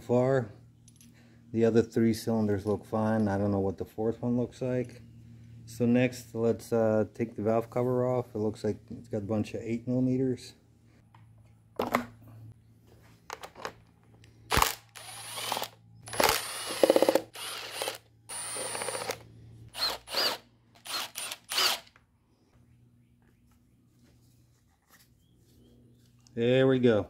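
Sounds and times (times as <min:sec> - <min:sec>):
power tool whirring bursts: 0:14.5 - 0:22.0.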